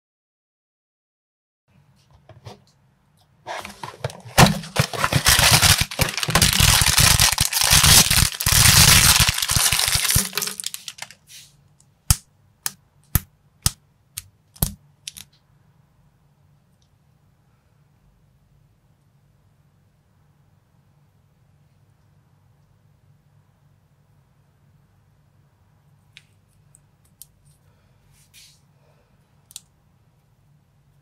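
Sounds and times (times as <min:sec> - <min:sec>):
plastic bag crinkling and tearing: 0:03.8 - 0:11.3
plastic pieces snapping together: 0:04.4 - 0:11.1, 0:12.1 - 0:15.3.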